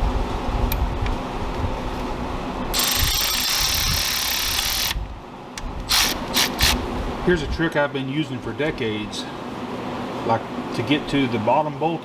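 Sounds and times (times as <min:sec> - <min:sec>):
ratchet clicking: 0:02.7 - 0:05.0, 0:05.8 - 0:06.8.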